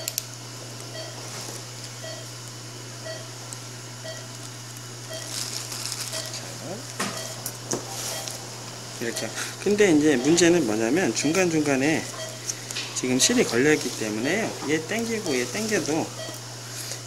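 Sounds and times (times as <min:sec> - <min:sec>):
patient monitor beeping: 0:00.0 - 0:00.2, 0:00.9 - 0:01.4, 0:02.0 - 0:02.4, 0:03.0 - 0:03.4, 0:04.0 - 0:04.4, 0:05.0 - 0:05.4, 0:06.0 - 0:17.0
steady low hum: 0:00.0 - 0:17.0.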